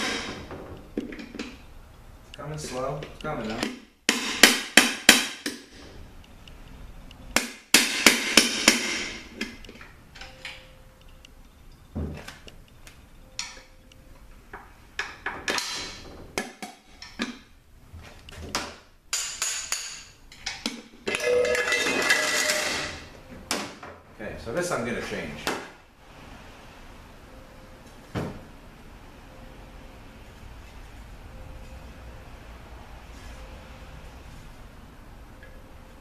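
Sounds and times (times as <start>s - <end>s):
metallic scraping and rattling: 20.0s - 23.1s.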